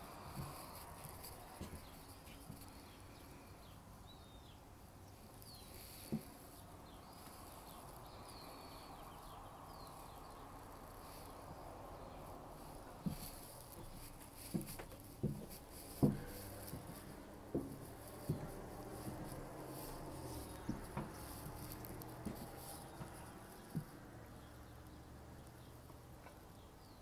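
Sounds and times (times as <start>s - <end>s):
birds chirping: 0.0s - 27.0s
footstep thuds: 13.0s - 24.1s.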